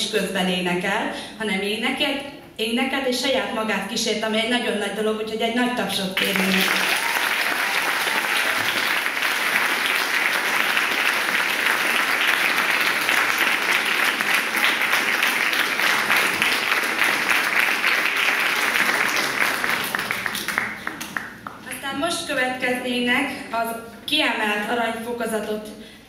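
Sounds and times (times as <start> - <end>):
audience applauding: 6.2 - 21.6.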